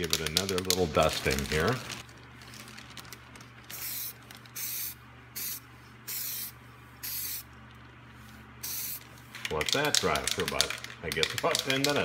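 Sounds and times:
low steady hum: 0:00.0 - 0:12.0
aerosol spray can hissing: 0:03.7 - 0:07.5, 0:08.6 - 0:09.0.

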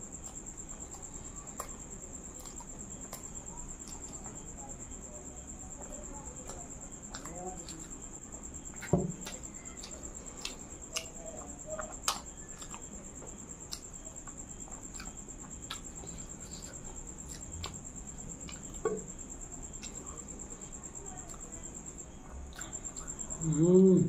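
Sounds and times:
mouth clicks and smacks eating: 0:00.1 - 0:04.6, 0:05.9 - 0:20.5.

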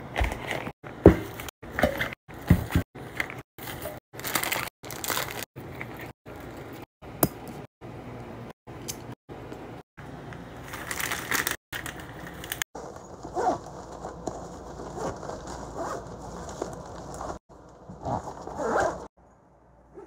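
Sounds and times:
plastic wrappers crinkling: 0:03.6 - 0:06.5, 0:10.6 - 0:17.4.

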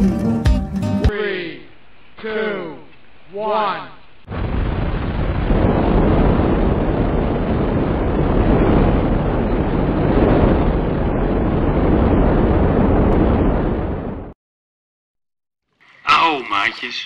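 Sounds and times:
rocket exhaust roaring: 0:04.3 - 0:14.4.

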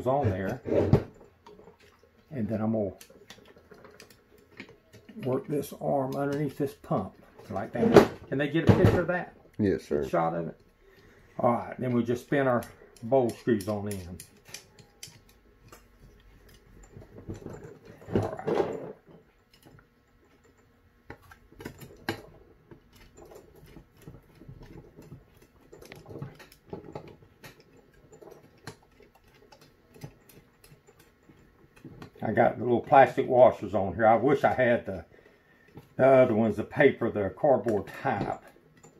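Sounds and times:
metal clicks and taps: 0:11.9 - 0:18.0.

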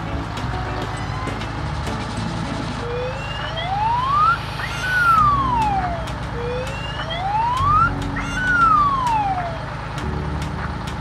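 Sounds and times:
background music with steady beat: 0:00.0 - 0:11.0
cartoon whistle gliding up and down: 0:02.9 - 0:09.6.

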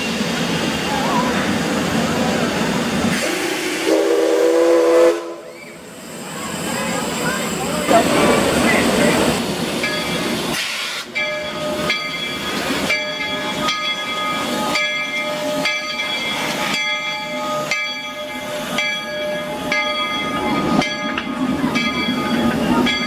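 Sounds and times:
steam hiss: 0:00.0 - 0:16.8
locomotive bell ringing: 0:07.6 - 0:10.5, 0:11.1 - 0:23.0.

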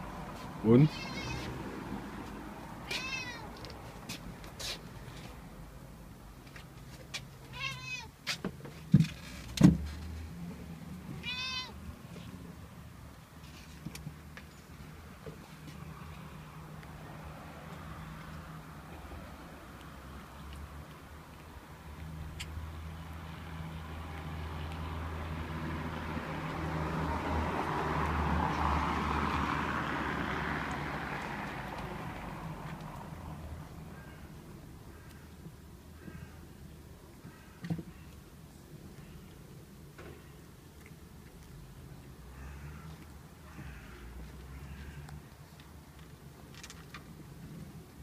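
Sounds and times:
vehicle passing by: 0:00.0 - 0:05.9, 0:09.7 - 0:13.8, 0:14.8 - 0:35.0
cat meowing: 0:00.9 - 0:01.5, 0:02.8 - 0:03.5, 0:07.5 - 0:08.1, 0:11.2 - 0:11.8.

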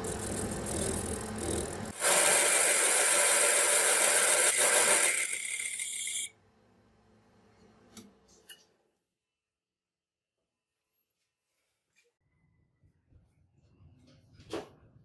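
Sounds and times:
lathe cutting hiss: 0:00.0 - 0:06.3.

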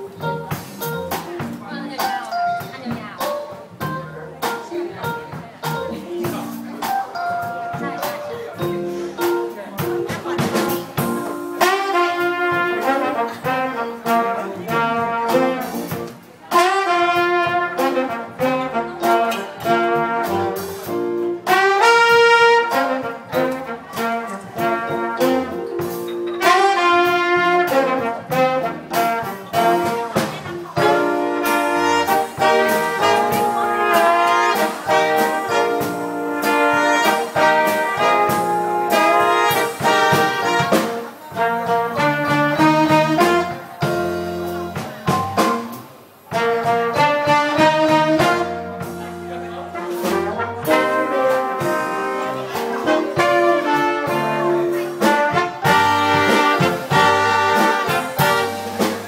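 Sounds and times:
bass guitar: 0:00.0 - 0:59.0
drums: 0:00.0 - 0:59.0
keyboard: 0:00.0 - 0:59.0
trombone: 0:00.0 - 0:59.0
trumpet: 0:10.6 - 0:59.0
saxophone: 0:11.0 - 0:44.8, 0:45.6 - 0:59.0.

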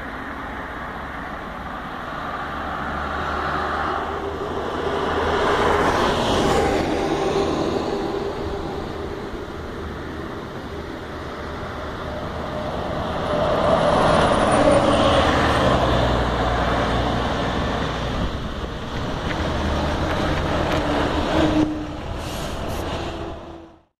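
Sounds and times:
bus driving past: 0:00.0 - 0:23.9.

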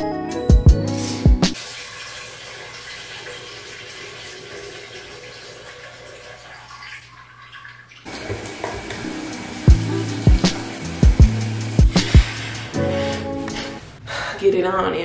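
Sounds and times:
music with drum beat: 0:00.0 - 0:01.6, 0:08.9 - 0:13.8
running water hissing: 0:01.0 - 0:06.6, 0:08.0 - 0:13.9.

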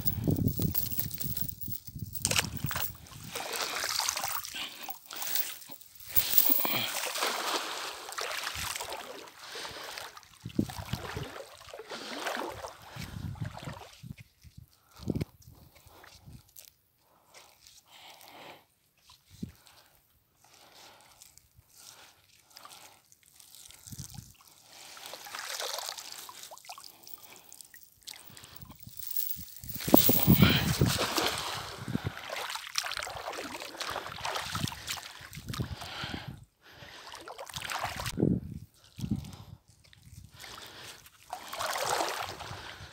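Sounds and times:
water splashing and trickling: 0:00.1 - 0:12.9, 0:22.8 - 0:35.3, 0:40.0 - 0:42.8.

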